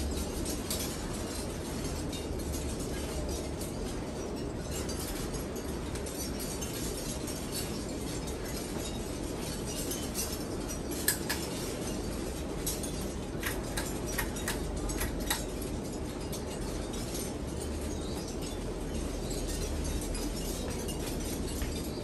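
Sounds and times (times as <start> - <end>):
pull chain clicking: 12.6 - 15.6.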